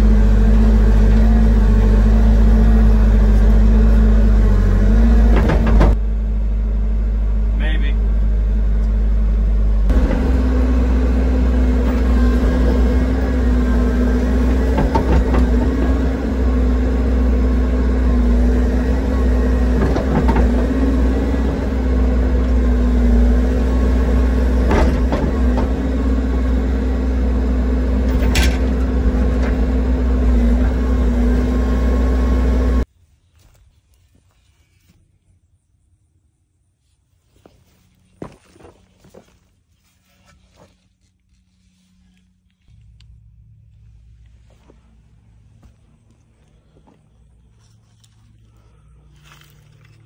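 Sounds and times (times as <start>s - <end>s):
excavator diesel engine running: 0.0s - 32.9s.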